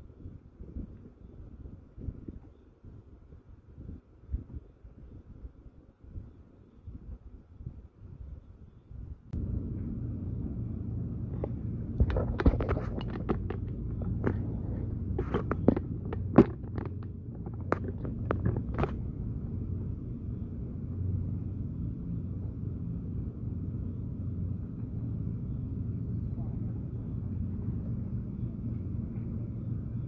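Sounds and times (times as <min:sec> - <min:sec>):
wind rumble on microphone: 0:00.0 - 0:30.0
sharp clicks and knocks: 0:11.2 - 0:19.2.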